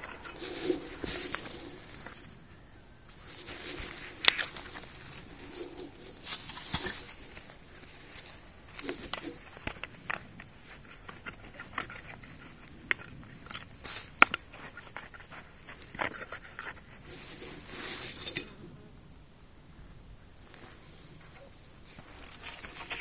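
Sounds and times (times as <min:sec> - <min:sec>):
work clothes rustling: 0:00.0 - 0:13.1
gloved hands scraping soil: 0:00.0 - 0:18.5, 0:20.5 - 0:23.0.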